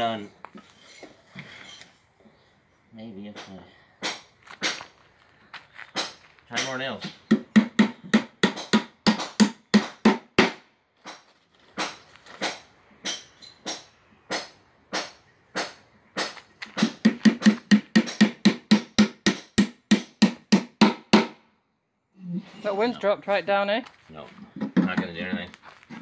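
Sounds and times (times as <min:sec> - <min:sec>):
hammer driving nails into wood: 0:07.3 - 0:11.2, 0:11.8 - 0:21.4.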